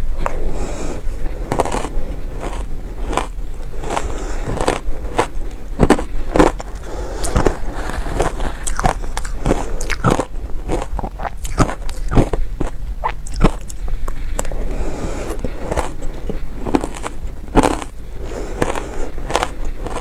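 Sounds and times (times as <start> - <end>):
shaved ice being chewed: 0.0 - 20.0.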